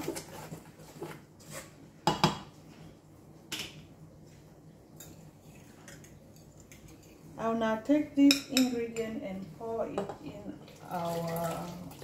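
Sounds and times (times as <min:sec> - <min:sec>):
utensils and bowls clinking: 0:05.0 - 0:07.3.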